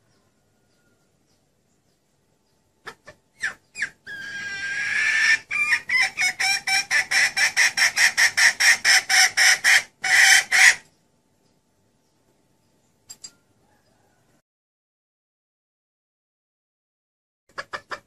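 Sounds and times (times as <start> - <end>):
hen squawking and clucking: 2.8 - 10.9, 17.5 - 18.0.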